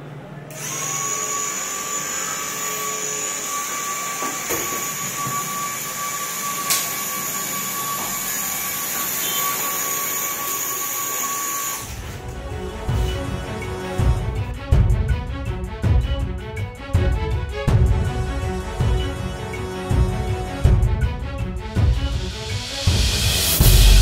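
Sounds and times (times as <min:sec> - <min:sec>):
small electric fan whining: 0:00.5 - 0:13.6.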